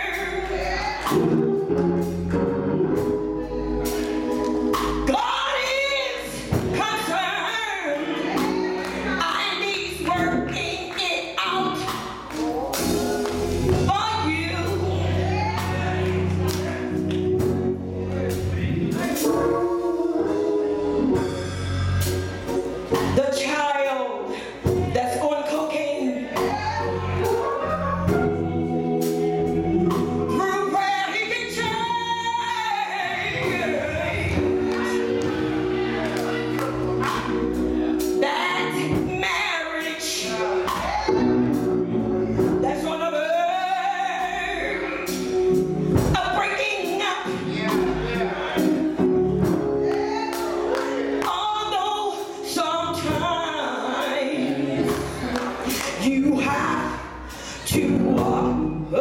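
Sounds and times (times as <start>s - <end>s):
gospel choir singing: 0.0s - 59.0s
held keyboard chords: 0.0s - 59.0s
woman singing into a microphone: 30.3s - 35.2s, 42.6s - 45.1s, 51.2s - 59.0s.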